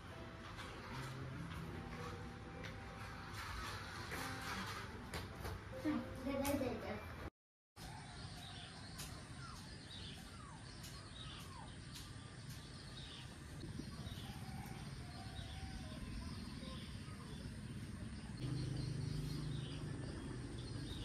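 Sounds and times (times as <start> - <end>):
birds chirping faintly: 5.9 - 21.0.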